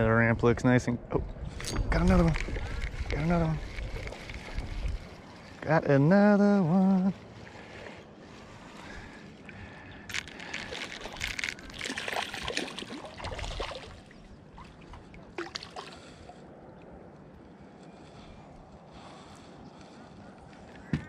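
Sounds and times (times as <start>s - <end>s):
fish splashing in water: 10.1s - 16.4s.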